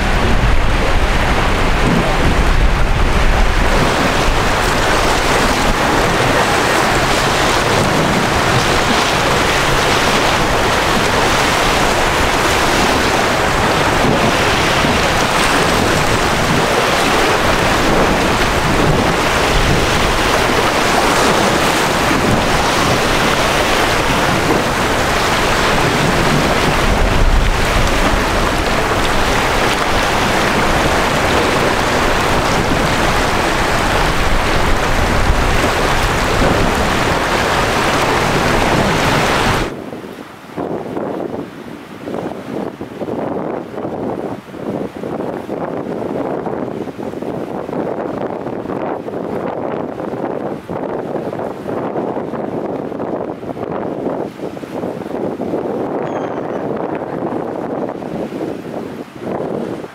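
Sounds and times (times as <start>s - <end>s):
strong wind buffeting microphone: 0.0s - 59.9s.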